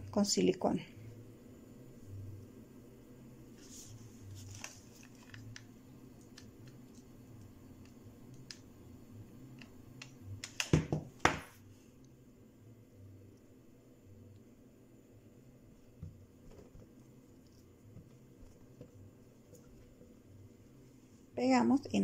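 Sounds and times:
low hum: 0:00.9 - 0:04.6.

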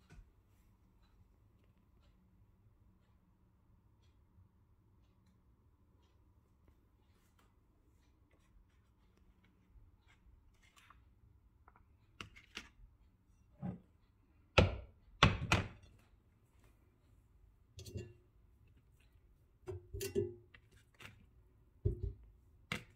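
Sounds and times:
plastic basket knocking on countertop: 0:21.9 - 0:22.2.

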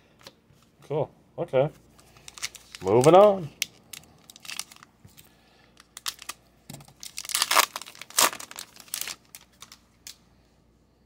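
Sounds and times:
wrapper tearing and crinkling: 0:02.2 - 0:04.9, 0:05.8 - 0:06.4, 0:07.0 - 0:10.2.

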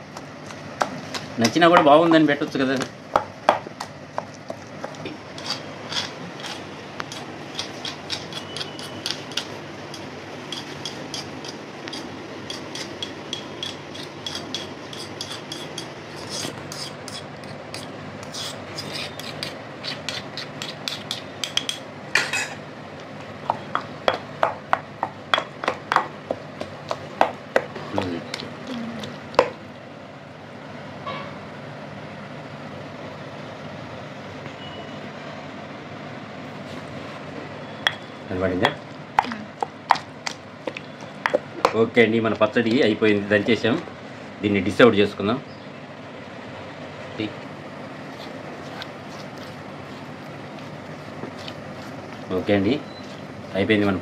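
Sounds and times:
stone pestle pounding in mortar: 0:03.1 - 0:21.9, 0:23.4 - 0:28.5, 0:29.3 - 0:29.6, 0:37.9 - 0:41.9
metal spoon scraping mortar: 0:05.3 - 0:21.8.

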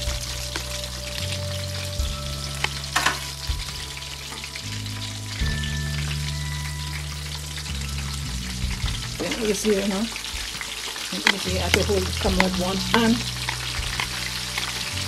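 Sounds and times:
chicken frying in oil: 0:00.0 - 0:15.0
crackling pops: 0:07.4 - 0:15.0.

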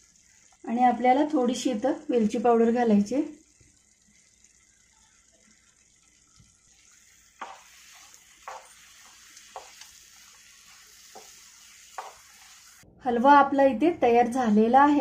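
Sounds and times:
faint steady hiss: 0:00.0 - 0:13.0
spatula knocking and scraping pan: 0:07.4 - 0:12.8.

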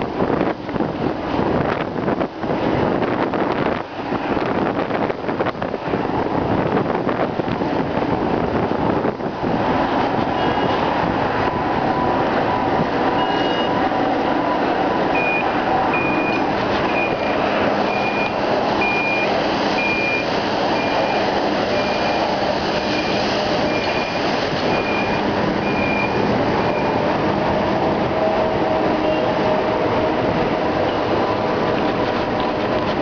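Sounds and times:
moving bicycle noise: 0:09.5 - 0:33.0
reversing alarm beeping: 0:11.5 - 0:27.1.

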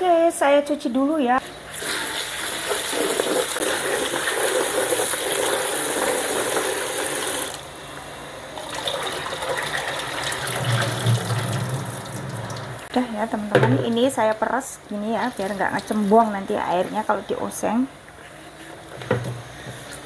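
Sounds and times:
tap running into basin: 0:08.7 - 0:12.9.

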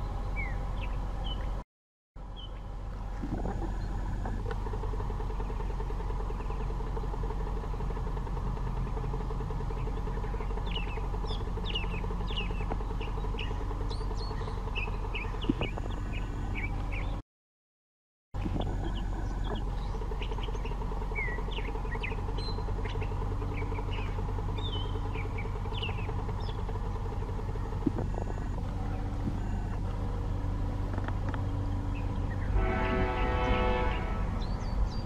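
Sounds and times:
small birds chirping: 0:00.0 - 0:01.6, 0:02.2 - 0:08.0, 0:08.6 - 0:17.2, 0:18.4 - 0:32.6, 0:34.4 - 0:35.0
low background hum: 0:18.4 - 0:35.0.

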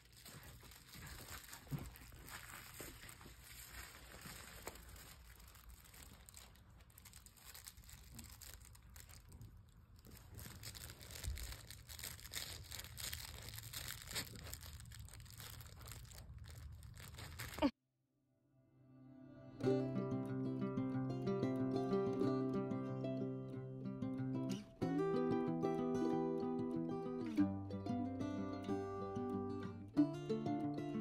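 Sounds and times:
puppies chewing a toy: 0:00.0 - 0:17.7.

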